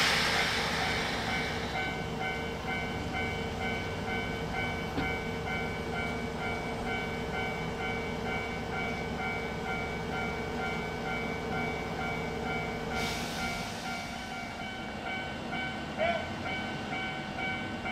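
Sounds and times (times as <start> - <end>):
hiss: 0.0 - 2.0, 13.0 - 14.3
electric train humming: 0.0 - 17.9.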